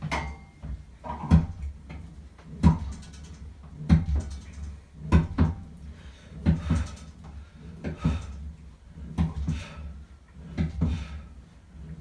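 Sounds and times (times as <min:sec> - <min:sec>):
home gym cables knocking: 0:00.0 - 0:12.0.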